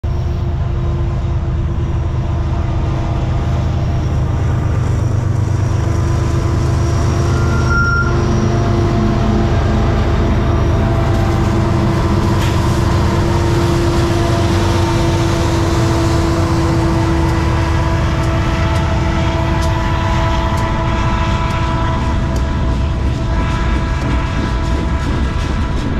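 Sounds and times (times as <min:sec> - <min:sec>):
diesel locomotive engines rumbling: 0:00.0 - 0:25.9.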